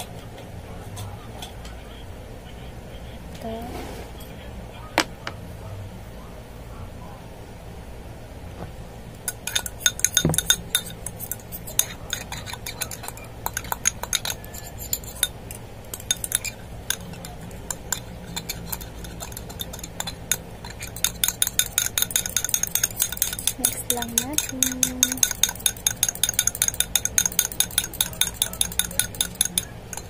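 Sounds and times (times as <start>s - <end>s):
metal utensil clinking on glass jar: 9.3s - 30.0s.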